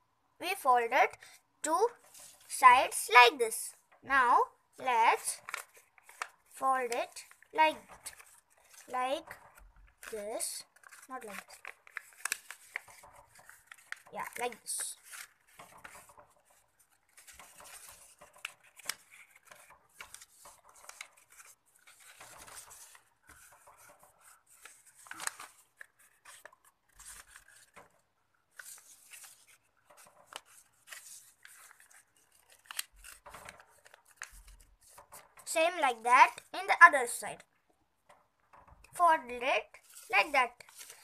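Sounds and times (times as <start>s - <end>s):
paper rustling and crackling: 1.8s - 2.6s, 4.9s - 36.5s, 38.1s - 41.0s.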